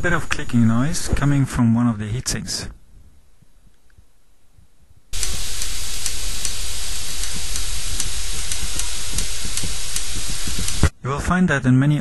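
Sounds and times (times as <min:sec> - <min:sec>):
loud steady hiss: 0:05.1 - 0:10.9.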